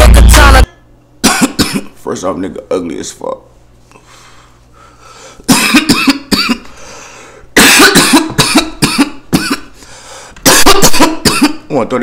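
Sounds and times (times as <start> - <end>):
man coughing hard: 1.2 - 2.0, 5.5 - 6.7, 7.6 - 9.8, 10.4 - 11.7.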